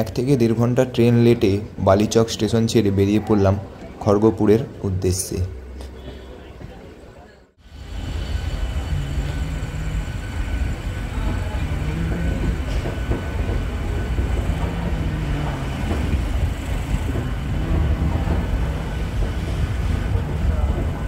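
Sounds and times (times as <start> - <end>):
train wheels rumbling on track: 7.6 - 21.0.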